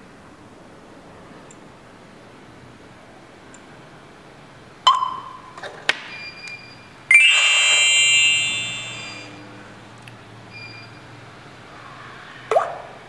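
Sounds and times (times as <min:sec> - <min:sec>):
electronic alarm beep: 0:06.2 - 0:09.5.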